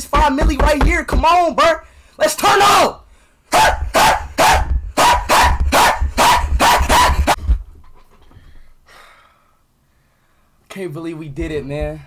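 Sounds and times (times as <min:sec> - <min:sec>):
man barking like a dog: 0:03.5 - 0:07.4
low thumps: 0:04.6 - 0:07.9.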